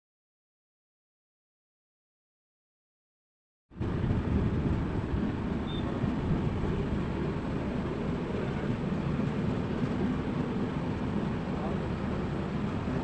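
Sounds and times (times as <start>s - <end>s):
train wheels rumbling on track: 3.8s - 13.0s.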